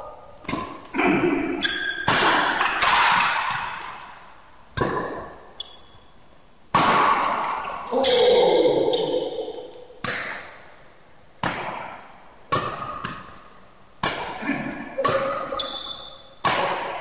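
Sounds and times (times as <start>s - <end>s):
badminton racquets hitting shuttlecock: 0.4s - 0.9s, 1.5s - 4.0s, 4.7s - 5.9s, 6.7s - 10.6s, 11.4s - 14.4s, 15.0s - 17.0s.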